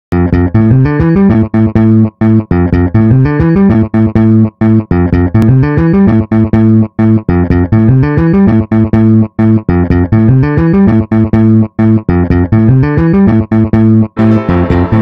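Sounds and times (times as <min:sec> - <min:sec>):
plucked bass riff: 0:00.1 - 0:15.0
techno track: 0:14.2 - 0:15.0.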